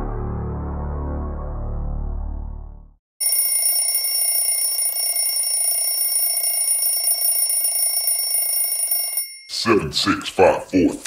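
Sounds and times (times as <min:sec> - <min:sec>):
ambient music: 0:00.0 - 0:03.0
phone alarm ringing: 0:03.2 - 0:09.6.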